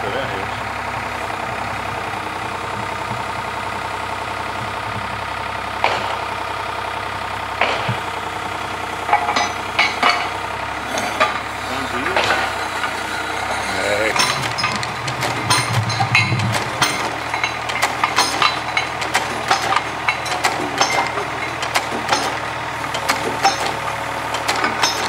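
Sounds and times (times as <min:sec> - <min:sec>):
drilling rig engine droning: 0:00.0 - 0:25.0
sharp metal clanks: 0:05.8 - 0:06.5, 0:07.6 - 0:08.2, 0:09.0 - 0:25.0.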